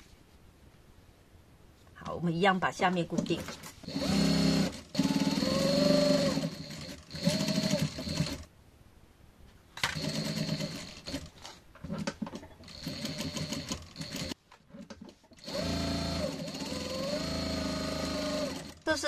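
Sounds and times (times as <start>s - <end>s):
electric sewing machine stitching: 3.8s - 8.5s, 9.9s - 11.3s, 11.9s - 14.4s, 15.4s - 19.0s.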